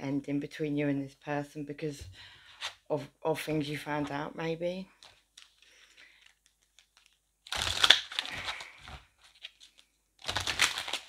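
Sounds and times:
cards being handled: 0:05.0 - 0:11.0
cards shuffling: 0:05.0 - 0:11.0.

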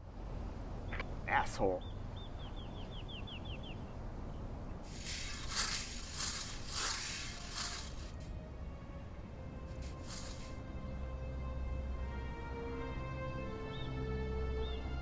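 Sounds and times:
bird chirping: 0:00.8 - 0:08.1
rake scraping dry ground: 0:04.8 - 0:08.3, 0:09.7 - 0:10.6.

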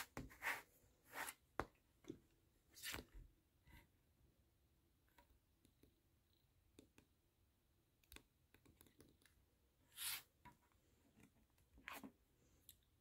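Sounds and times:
tablet brushing: 0:00.0 - 0:01.5, 0:09.9 - 0:10.4.

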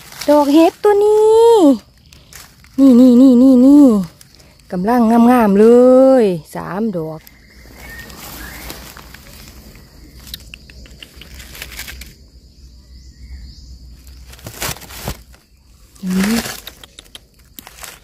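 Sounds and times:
dry leaves rustling and crackling: 0:00.0 - 0:06.3, 0:07.2 - 0:12.2, 0:14.0 - 0:18.0
scattered clicks: 0:10.2 - 0:12.1.

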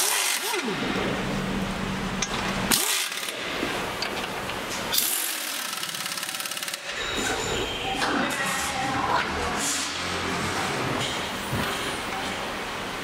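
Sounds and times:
pneumatic impact wrench bursts: 0:00.0 - 0:01.0, 0:02.7 - 0:03.5, 0:04.9 - 0:07.0.

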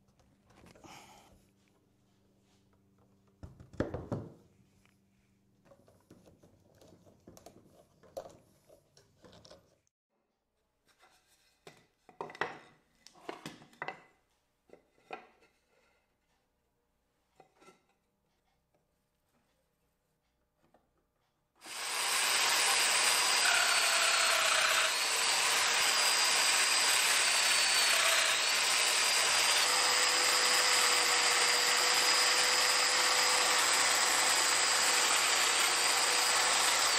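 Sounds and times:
soft rubbing and shuffling: 0:01.4 - 0:03.0
wooden knock on workbench: 0:03.4 - 0:04.4.

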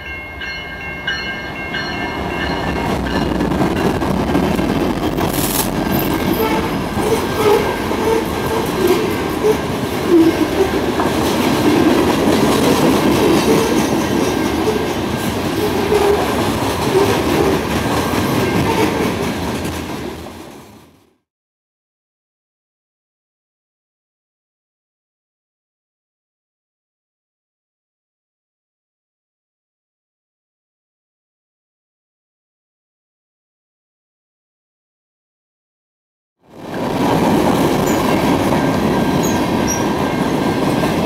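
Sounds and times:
freight train wheels rumbling: 0:00.0 - 0:21.0, 0:36.5 - 0:41.0
wheels clicking over rail joints: 0:02.5 - 0:20.7
diesel train horn blast: 0:06.2 - 0:10.9, 0:15.6 - 0:17.6, 0:18.5 - 0:19.2.

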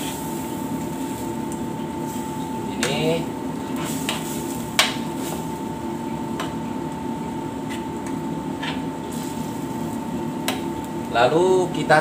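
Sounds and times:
cooking hiss: 0:00.0 - 0:12.0
spatula stirring food in pan: 0:03.6 - 0:06.6.

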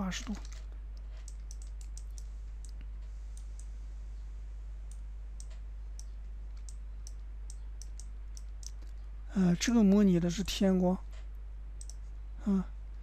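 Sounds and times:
low hum: 0:00.0 - 0:13.0
computer mouse clicking: 0:00.2 - 0:02.8, 0:04.9 - 0:09.0, 0:11.8 - 0:12.0.

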